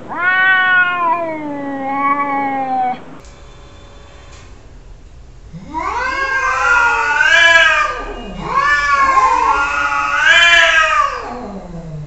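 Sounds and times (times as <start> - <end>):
cats yowling: 0.0 - 3.2, 5.6 - 12.0.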